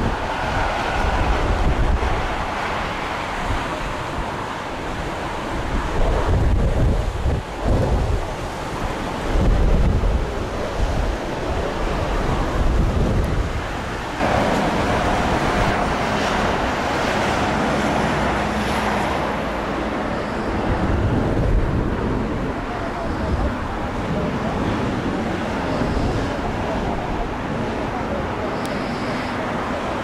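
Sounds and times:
jet engines roaring: 0:00.0 - 0:30.0
wind buffeting microphone: 0:00.0 - 0:30.0.

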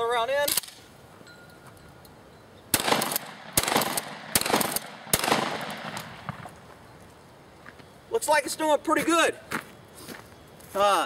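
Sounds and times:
shotgun bangs echoing: 0:02.7 - 0:06.5.

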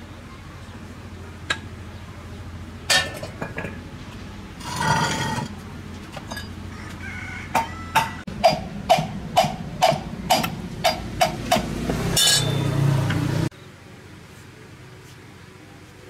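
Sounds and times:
rough steady noise: 0:00.0 - 0:16.0.

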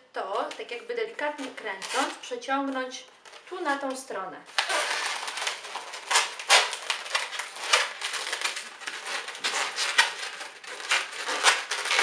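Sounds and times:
balloons rubbing squeakily: 0:04.5 - 0:12.0.

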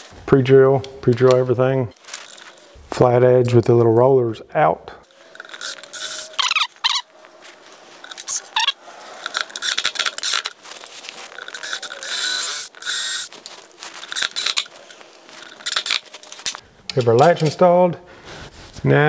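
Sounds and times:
cordless drill driving screws: 0:05.3 - 0:07.0, 0:08.1 - 0:16.6.

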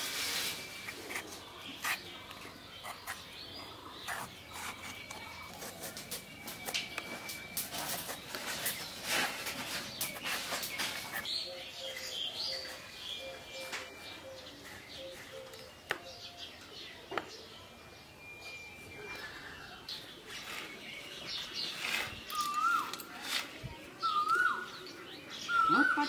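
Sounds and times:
birds chirping: 0:00.0 - 0:26.0
knife scraping gourd skin: 0:00.7 - 0:03.3, 0:03.9 - 0:06.4.

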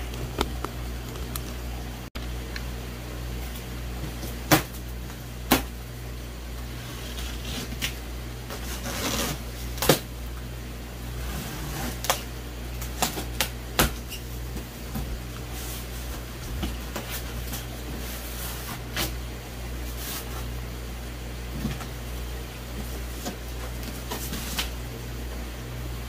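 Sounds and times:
steady low hum: 0:00.0 - 0:26.0
cardboard ripping: 0:06.8 - 0:10.1, 0:11.2 - 0:14.0
knocks and scrapes on cardboard: 0:06.9 - 0:10.0.

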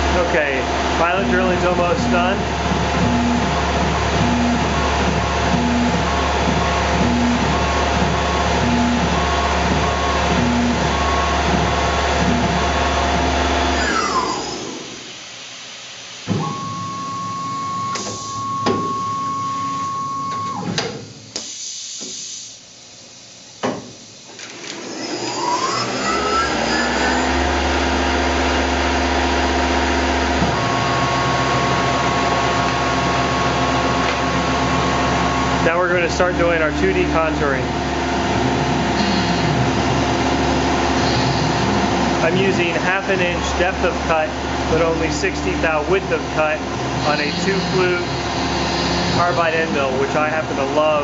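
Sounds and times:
milling machine spindle whine: 0:00.0 - 0:15.2, 0:24.2 - 0:51.0
steady tone: 0:30.0 - 0:51.0.

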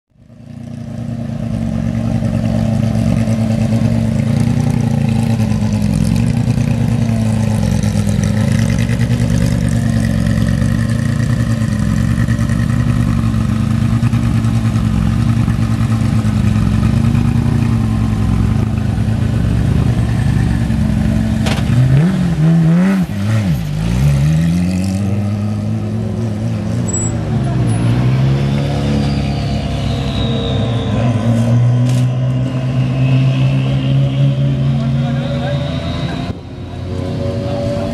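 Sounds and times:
rally car engine idling: 0:00.5 - 0:21.7
engine throttle blips: 0:28.5 - 0:37.9.

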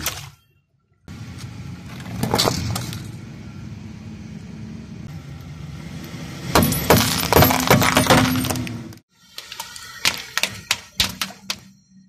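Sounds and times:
car engine rumbling: 0:01.0 - 0:09.1
tyre crushing plastic tubes: 0:06.6 - 0:11.6.

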